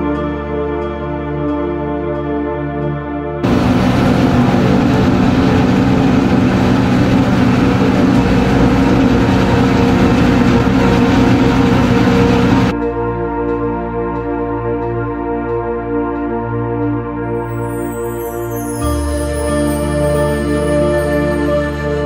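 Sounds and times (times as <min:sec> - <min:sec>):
tractor running: 0:03.4 - 0:12.7.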